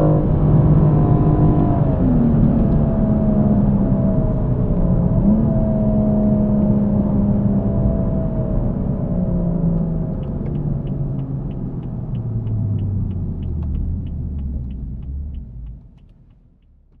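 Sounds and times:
car engine slowing: 0.0s - 17.0s
turn signal ticking: 9.8s - 17.0s.

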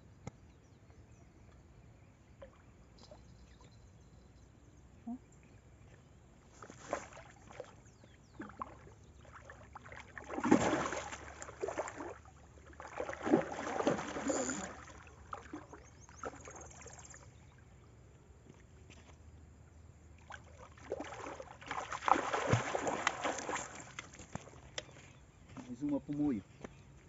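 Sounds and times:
water splashing and sloshing: 5.8s - 17.8s, 20.0s - 25.0s.

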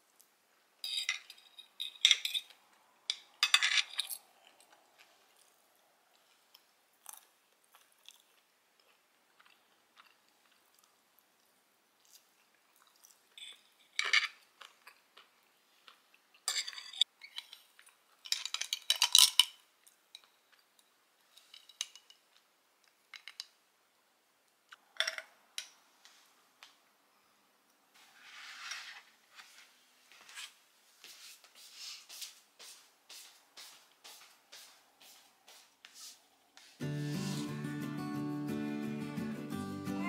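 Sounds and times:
cutlery scraping on a plate: 0.8s - 2.6s.

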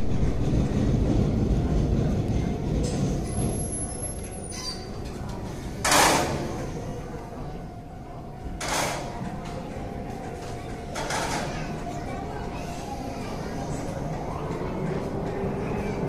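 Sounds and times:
low background rumble: 0.0s - 4.3s.

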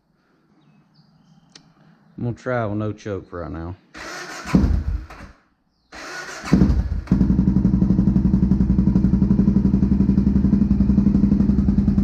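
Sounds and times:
motorcycle engine idling: 6.6s - 12.0s.

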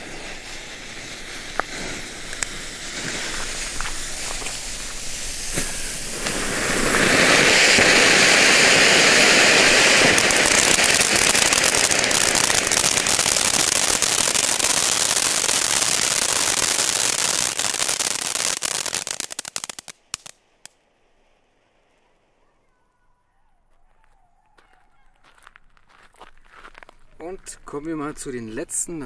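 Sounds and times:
firework fountains hissing: 0.0s - 20.8s
firework crackling and pops: 0.0s - 22.8s.

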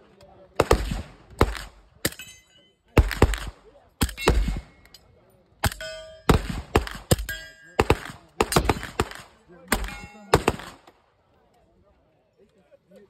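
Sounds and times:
gunshots: 0.6s - 2.3s, 3.0s - 4.9s, 5.6s - 11.0s
metallic ringing: 2.1s - 2.8s, 5.6s - 6.4s, 7.1s - 8.0s.

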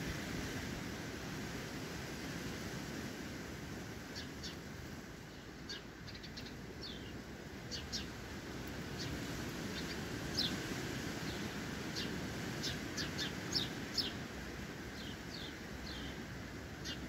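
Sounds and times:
sparrows chirping: 4.2s - 4.7s, 5.3s - 8.2s, 8.9s - 14.3s, 14.9s - 17.0s.

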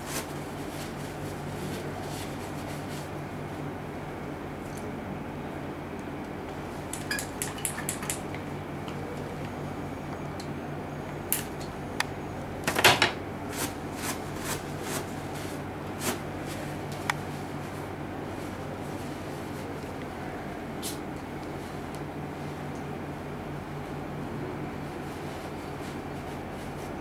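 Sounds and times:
steady low hum: 0.0s - 27.0s.

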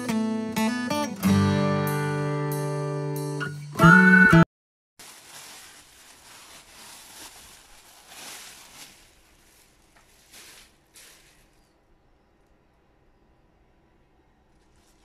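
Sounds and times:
acoustic guitar music: 0.0s - 4.4s
plastic bag crinkling: 5.0s - 11.8s, 14.5s - 15.0s
spinach rustling on board: 5.0s - 11.8s, 14.5s - 15.0s.

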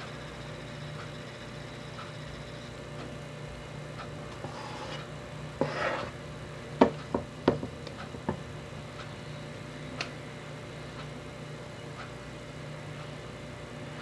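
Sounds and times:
plastic cup scraping metal bowl: 5.6s - 6.2s.

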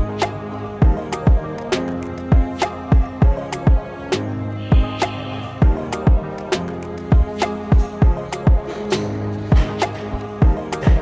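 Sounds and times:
sustained instrumental tones: 2.4s - 8.6s
electronic kick drum: 5.6s - 6.3s.

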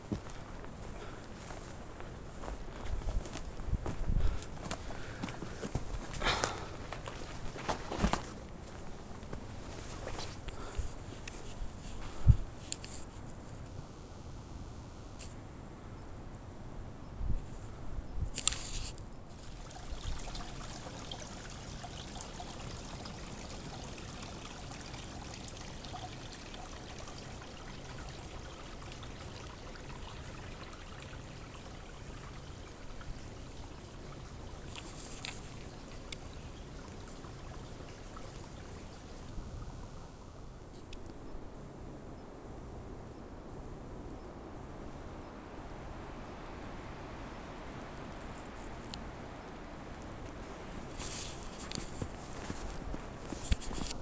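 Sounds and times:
stream trickling over rocks: 18.4s - 41.2s, 45.5s - 54.0s.

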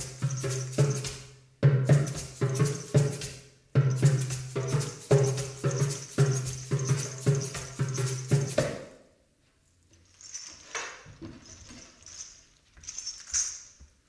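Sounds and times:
ankle rattles shaking: 0.0s - 1.1s, 3.9s - 8.7s, 10.0s - 14.0s
percussion strokes: 0.0s - 9.0s.

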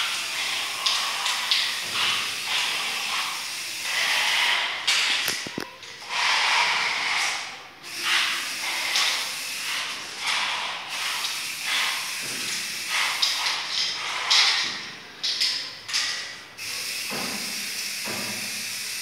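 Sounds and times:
spray can hissing: 0.0s - 14.7s.

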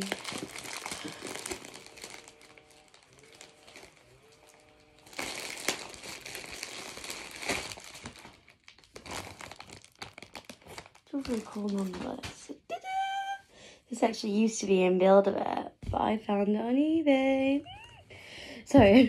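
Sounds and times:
plastic packaging crinkling: 0.0s - 12.4s.

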